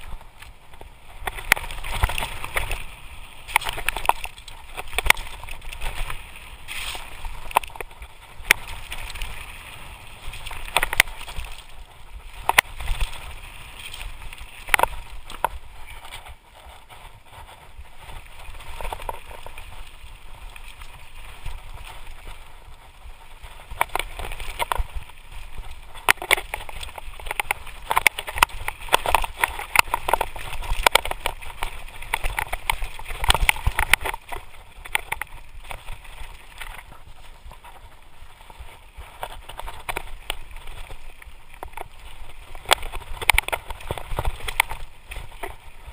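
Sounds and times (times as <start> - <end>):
tyres over loose stones: 25.9 - 36.0.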